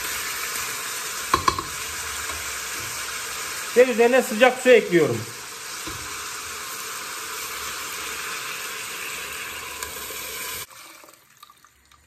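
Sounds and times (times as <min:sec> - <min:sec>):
meat sizzling in oil: 0:00.0 - 0:11.2.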